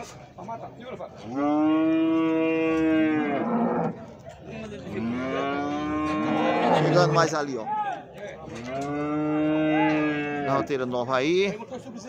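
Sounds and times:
cattle mooing: 1.3 - 4.0, 4.9 - 7.3, 8.5 - 10.7.

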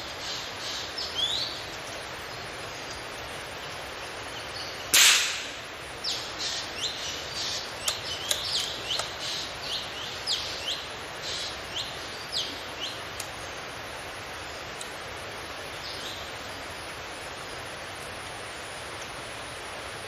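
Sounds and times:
bird chirping: 0.0 - 13.5
gunshot: 5.0 - 5.6.

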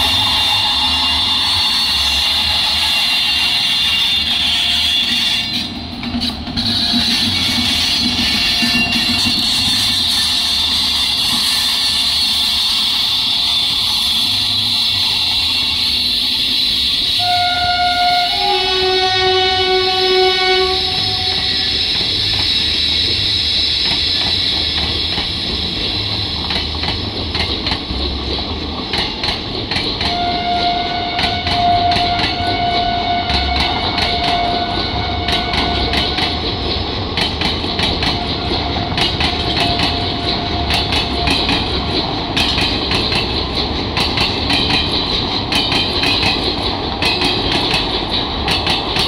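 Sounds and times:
train wheels clattering over joints: 0.0 - 17.0, 20.1 - 49.0
train rumble: 0.0 - 49.0.

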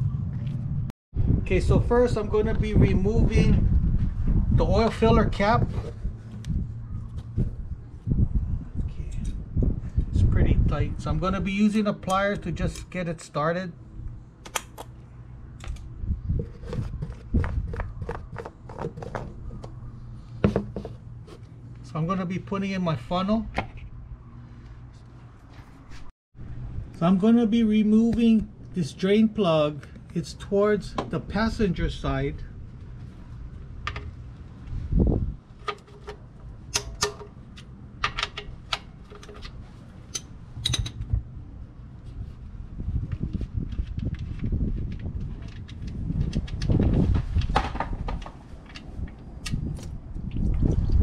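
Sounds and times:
cap clicking and scraping: 16.4 - 19.7, 35.6 - 41.0.

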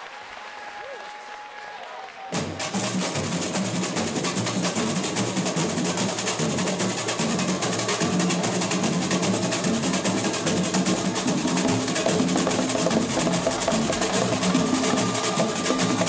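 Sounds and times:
samba drums playing fast rhythm: 10.3 - 16.0.

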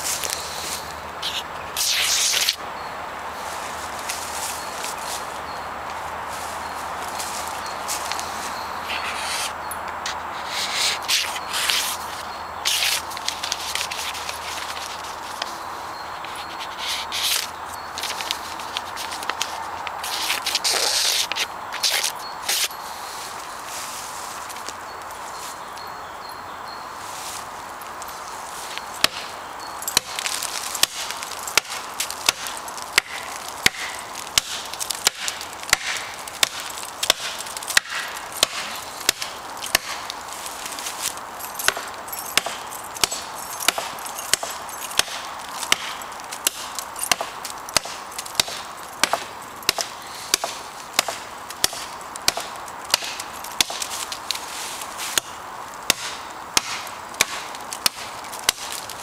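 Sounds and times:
blade chopping wood: 29.0 - 29.3, 29.9 - 40.1, 41.6 - 54.1, 55.1 - 59.0.

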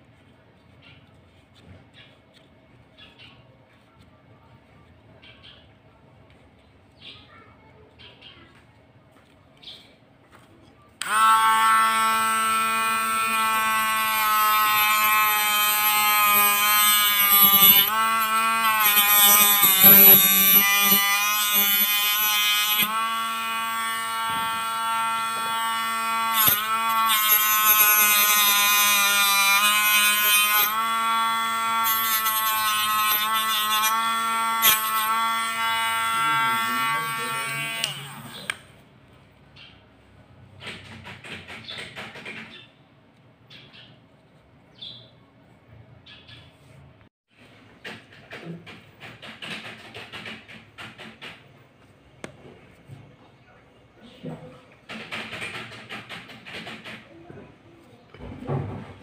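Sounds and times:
mini electric drill whining: 11.0 - 38.7.

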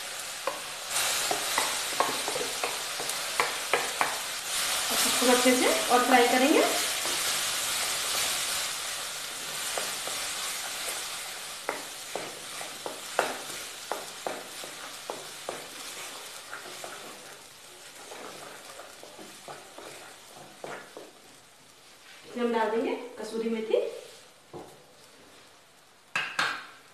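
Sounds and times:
paste sizzling in hot oil: 0.0 - 22.2
spatula tapping and scraping pan: 0.4 - 4.3, 5.2 - 8.4, 9.4 - 21.3.

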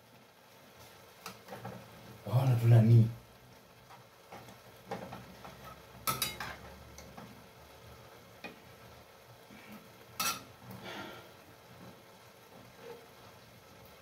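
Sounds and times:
faint sizzle: 0.0 - 14.0
utensil scraping and clinking pan: 5.6 - 6.7, 10.2 - 10.5.

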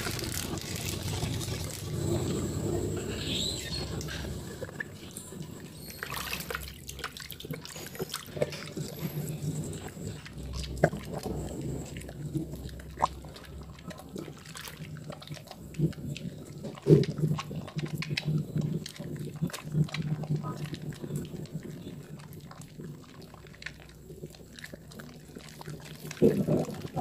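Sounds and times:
soap squelching in wet hands: 0.0 - 27.0.

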